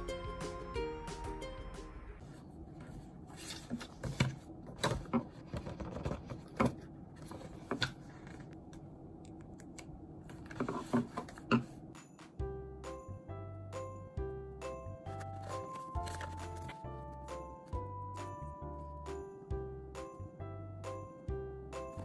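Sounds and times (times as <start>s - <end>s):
low room hum: 1.9s - 22.0s
paper rustling: 2.3s - 8.5s, 15.1s - 17.2s.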